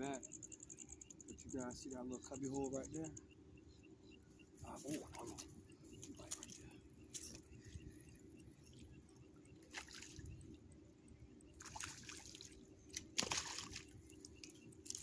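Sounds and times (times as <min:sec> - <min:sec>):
water splashing and dripping: 0:09.6 - 0:10.5, 0:11.6 - 0:15.0.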